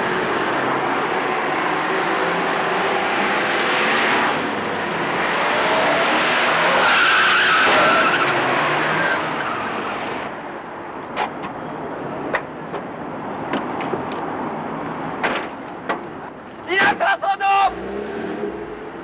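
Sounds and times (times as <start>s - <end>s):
car tyres skidding and squealing: 5.3s - 9.8s.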